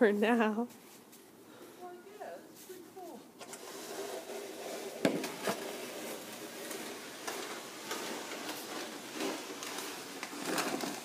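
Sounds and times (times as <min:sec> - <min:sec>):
snow shovel clacking on driveway: 0:02.3 - 0:11.0
shovel scraping through snow: 0:03.4 - 0:11.0.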